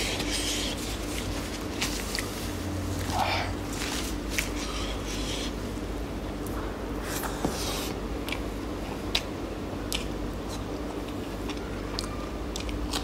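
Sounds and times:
steady low hum: 0.0 - 13.0
wet chewing: 9.9 - 13.0.

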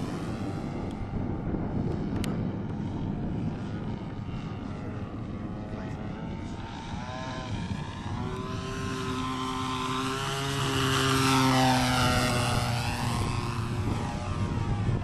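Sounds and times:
model airplane engine droning: 0.0 - 15.0.

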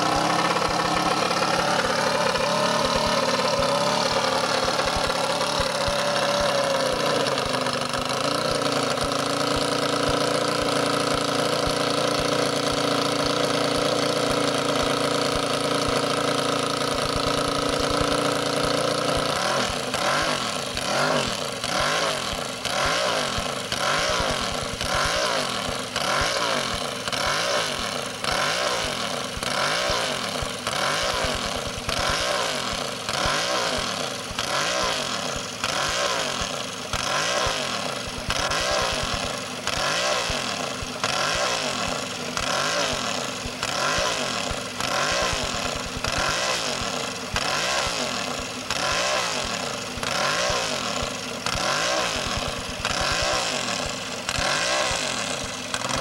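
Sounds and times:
motorcycle engine idling and revving: 0.0 - 56.0.

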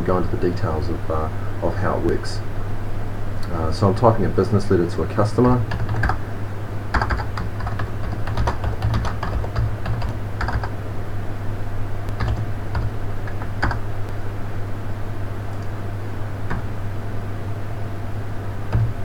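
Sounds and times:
steady low hum: 0.0 - 19.0
keyboard typing: 5.7 - 6.2, 6.9 - 10.8, 12.1 - 13.8, 16.5 - 16.7, 18.7 - 19.0.

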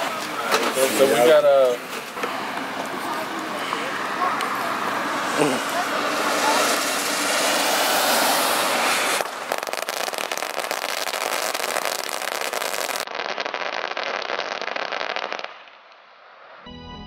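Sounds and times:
firecrackers popping: 5.4 - 16.6.

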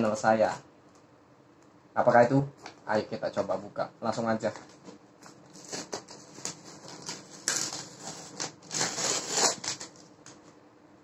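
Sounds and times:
scratchy rubbing and rustling: 5.5 - 10.0
packing tape peeling and ripping: 5.5 - 10.4.

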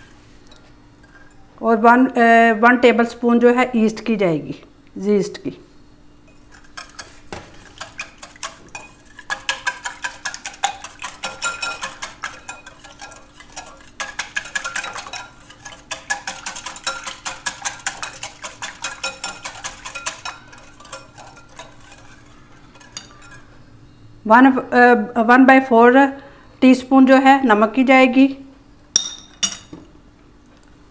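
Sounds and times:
whisk clicking against glass bowl: 6.7 - 23.5.

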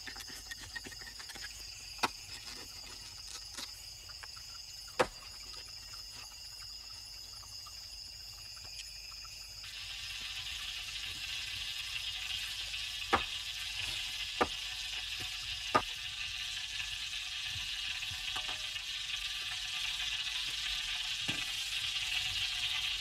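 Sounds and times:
wok frying sizzle: 9.6 - 23.0.

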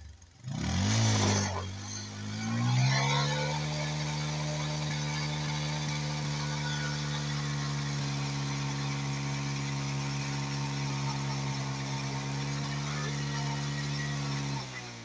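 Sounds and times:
motorcycle engine at steady revs: 0.0 - 15.0
tyre spinning on wet mud: 0.6 - 1.8.

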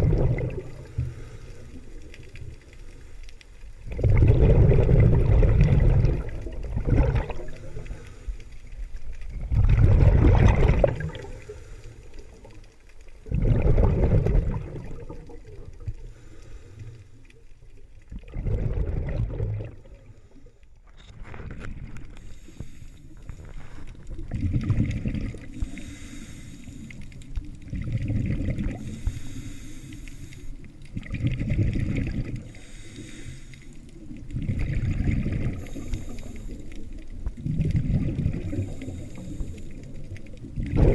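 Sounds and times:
underwater bubbles exhaled: 0.0 - 40.9
diver breathing through regulator: 0.6 - 2.0, 7.4 - 8.6, 15.9 - 17.3, 22.1 - 24.0, 25.4 - 27.2, 28.6 - 30.7, 32.4 - 33.9, 35.3 - 36.9, 38.4 - 40.0.

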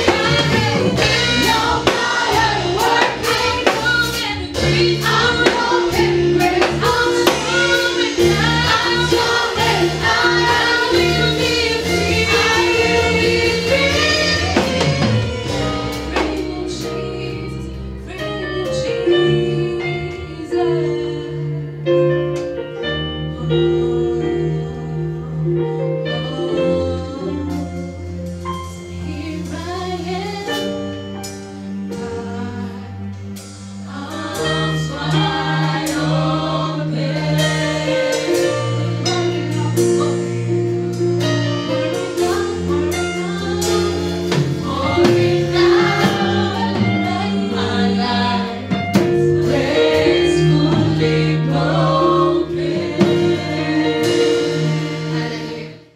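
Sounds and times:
woman singing lead: 0.0 - 21.9, 33.9 - 55.8
gospel choir singing: 0.0 - 55.9
sustained instrumental chords: 0.0 - 55.9.

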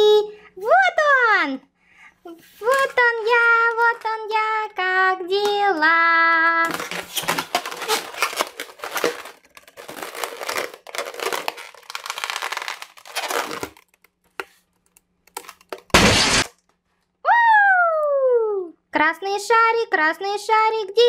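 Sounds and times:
balloon rubber squeaking: 6.6 - 13.9
balloon popping: 6.7 - 13.9, 15.4 - 16.5.

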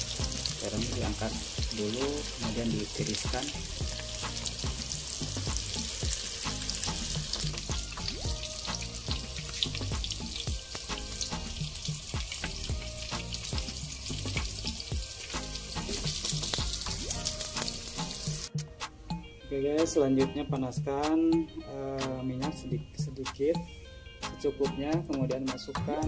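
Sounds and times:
eggplant sizzling in oil: 0.0 - 18.6.

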